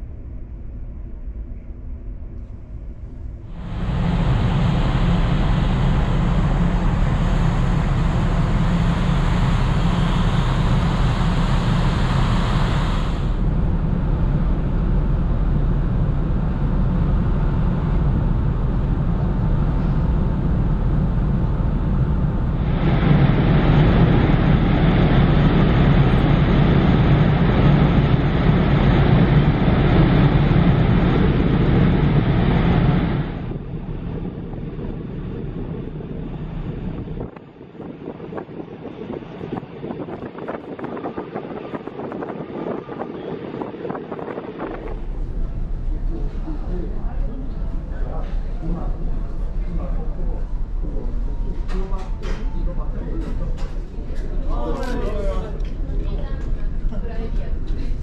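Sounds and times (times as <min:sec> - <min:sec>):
ship engine and ventilation rumble: 0:00.0 - 0:58.0.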